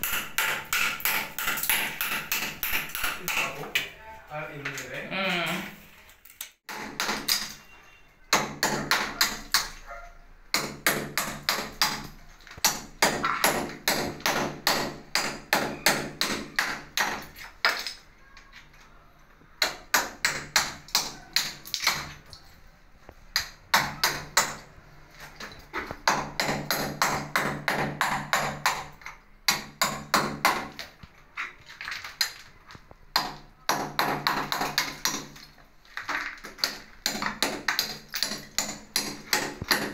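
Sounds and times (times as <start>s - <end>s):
hammer knocking mortar off wall: 0.0s - 3.8s, 6.7s - 7.6s, 8.3s - 9.8s, 10.5s - 18.0s, 19.6s - 22.3s, 23.3s - 24.7s, 25.4s - 31.0s, 33.1s - 39.9s.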